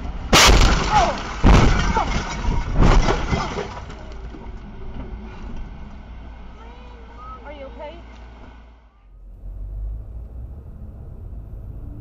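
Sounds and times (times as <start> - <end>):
heavy car crash impacts: 0.0 - 5.7
windshield glass smashing: 0.3 - 4.2.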